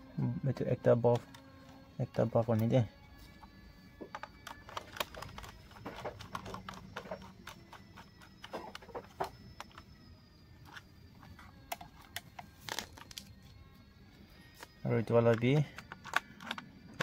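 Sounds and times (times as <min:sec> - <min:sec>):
wires being handled: 0:04.0 - 0:09.9, 0:10.6 - 0:13.5
screwdriver clicking and scraping: 0:04.1 - 0:09.9, 0:15.0 - 0:17.0.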